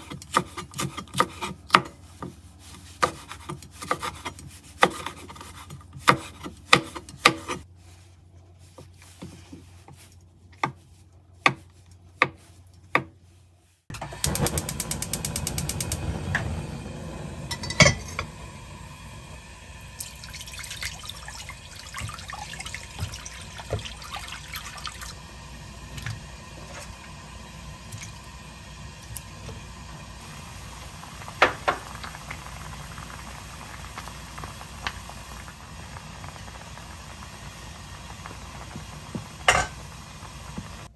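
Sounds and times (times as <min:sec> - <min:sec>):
knife chopping on wooden board: 0:11.4 - 0:13.2
water filling a pan: 0:16.4 - 0:40.9.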